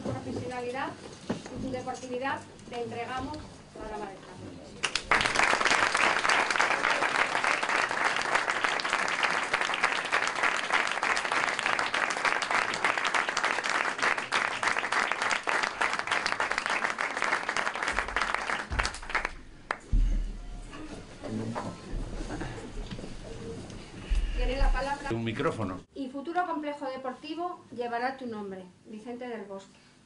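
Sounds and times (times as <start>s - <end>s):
audience applauding: 4.8s - 19.9s.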